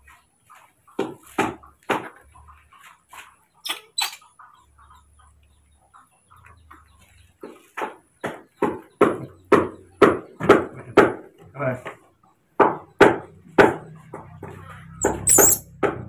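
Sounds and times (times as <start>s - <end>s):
baby monkeys calling: 15.0s - 15.6s.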